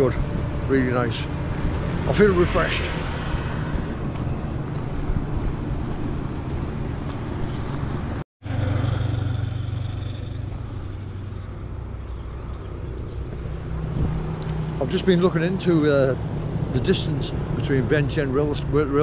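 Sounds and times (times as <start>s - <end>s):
engine drone: 0.0s - 19.0s
low traffic rumble: 0.0s - 19.0s
passing cars and motorbikes: 0.0s - 19.0s.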